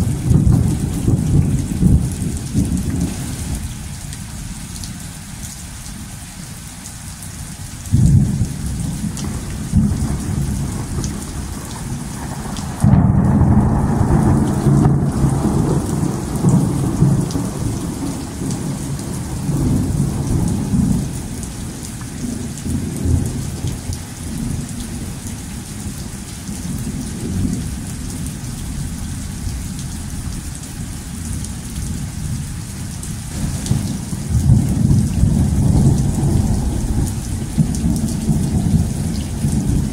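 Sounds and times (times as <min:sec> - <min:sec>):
thunder rumbling: 0:00.0 - 0:03.7, 0:07.9 - 0:25.0, 0:33.3 - 0:39.9
steady rain: 0:00.0 - 0:39.9.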